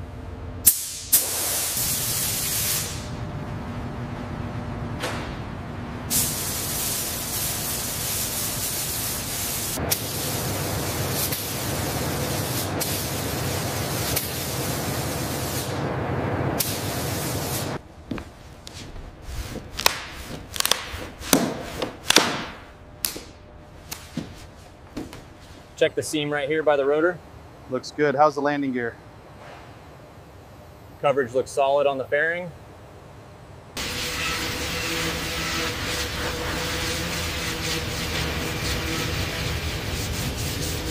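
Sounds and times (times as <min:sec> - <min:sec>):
spray gun hissing: 0:00.7 - 0:03.1, 0:06.1 - 0:15.8, 0:16.6 - 0:17.8, 0:33.8 - 0:40.9.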